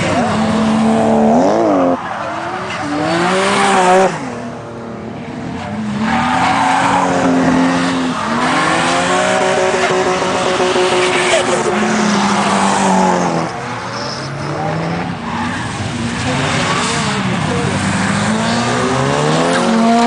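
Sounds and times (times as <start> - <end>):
car engines revving: 0.0 - 20.0.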